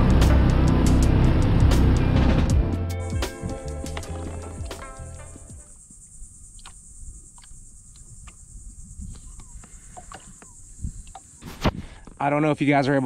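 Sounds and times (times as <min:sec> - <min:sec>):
background music: 0:00.0 - 0:05.7
high-pitched insect drone: 0:03.0 - 0:11.6.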